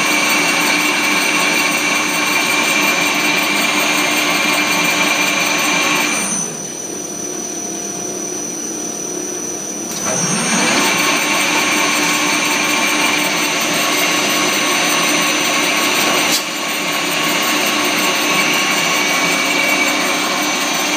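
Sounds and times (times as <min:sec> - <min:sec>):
wire coiler whirring and whining: 0:09.8 - 0:20.9.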